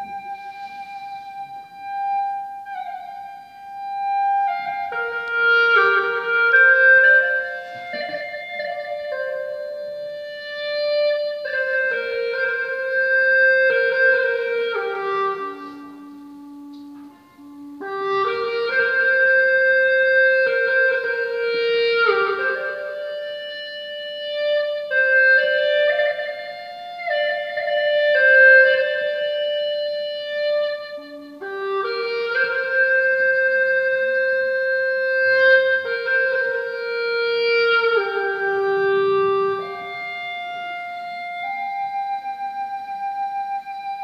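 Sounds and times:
solo wind instrument melody: 0.0s - 44.0s.

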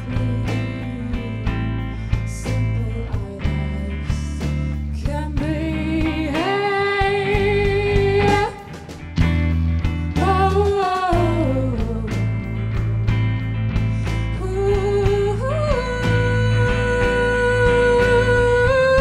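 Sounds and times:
woman singing with vibrato: 0.0s - 9.0s, 10.1s - 12.6s, 14.3s - 19.0s
drum kit: 0.0s - 19.0s
electric bass: 0.0s - 19.0s
electric guitar: 0.0s - 19.0s.

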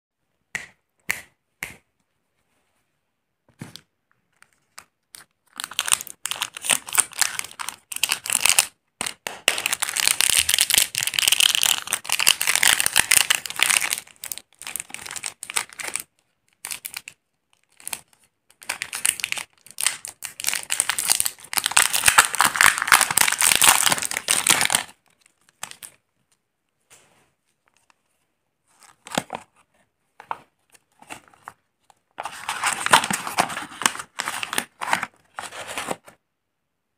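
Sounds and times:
plastic wrapper crinkling: 4.4s - 8.8s, 9.5s - 26.0s.

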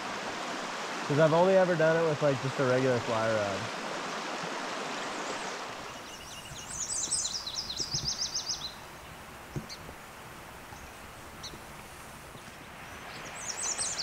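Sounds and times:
quiet outdoor ambience: 0.0s - 14.0s
rushing stream water: 0.0s - 14.0s
songbird singing high notes: 5.8s - 8.8s, 13.0s - 14.0s.

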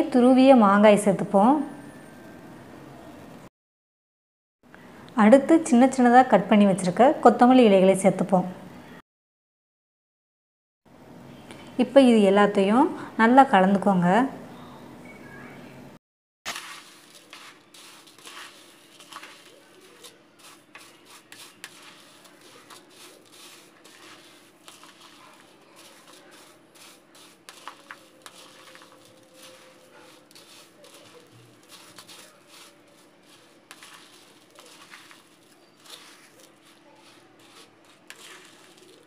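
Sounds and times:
plastic spatula scraping bowl: 16.5s - 39.0s
puffed rice rustling in plastic bowl: 16.5s - 39.0s.

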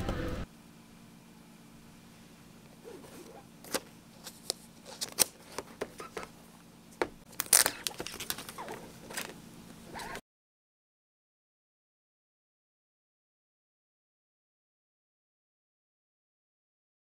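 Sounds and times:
crinkling rustles: 7.3s - 9.4s.

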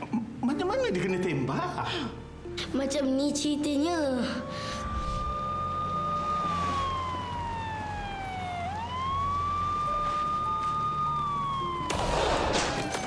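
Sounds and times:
police siren wailing: 4.6s - 13.0s.

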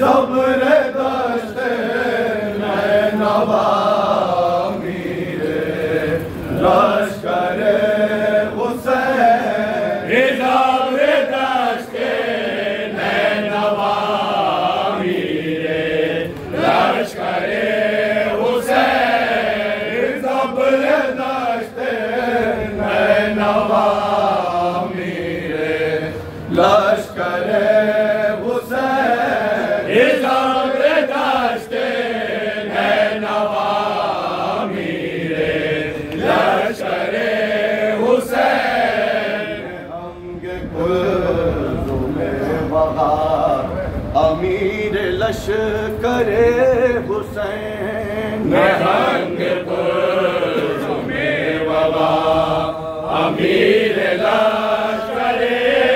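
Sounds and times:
men chanting a lament: 0.0s - 55.9s.

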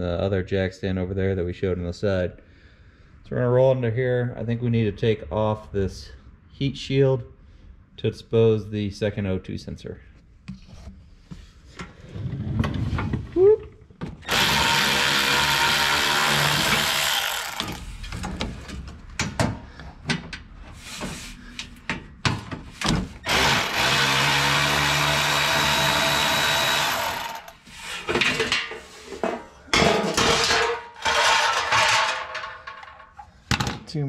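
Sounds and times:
power drill spinning screws: 14.2s - 18.0s, 23.2s - 27.6s.

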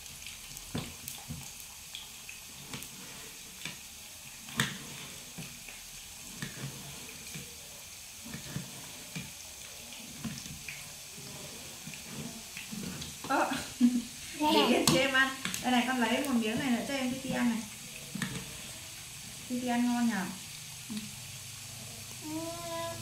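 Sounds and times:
potatoes sizzling in oil: 0.0s - 23.0s.

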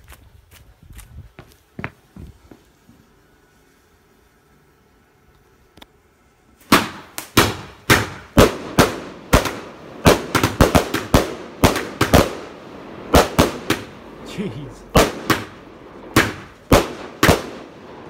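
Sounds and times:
firework cake bangs: 6.7s - 14.0s, 14.9s - 17.8s.

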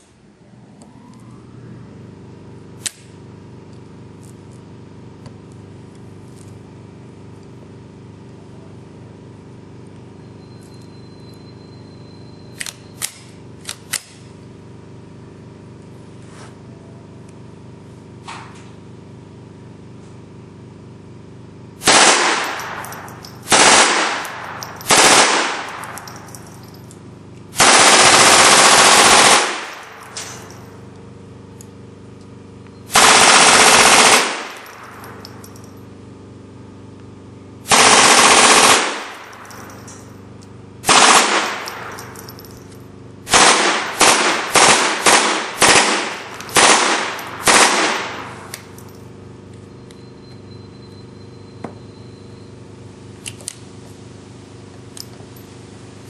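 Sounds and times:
machine gun bursts: 21.8s - 26.8s, 27.6s - 30.6s, 32.9s - 35.6s, 37.7s - 40.0s, 40.8s - 42.6s, 43.3s - 48.8s
metallic clicks of gun action: 25.6s - 27.0s, 41.3s - 42.8s.

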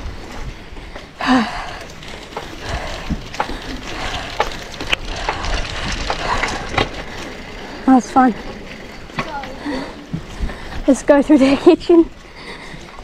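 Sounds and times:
bicycle tyres crackling on leaves: 0.0s - 13.0s
bike parts rattling: 0.0s - 13.0s
wind rumble on microphone: 2.6s - 7.6s.

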